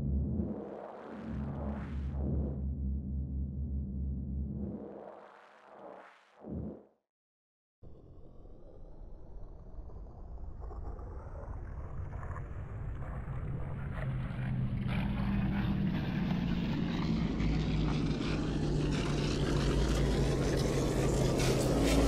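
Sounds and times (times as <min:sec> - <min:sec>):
synthetic droning riser: 0:00.0 - 0:06.8, 0:13.0 - 0:22.0.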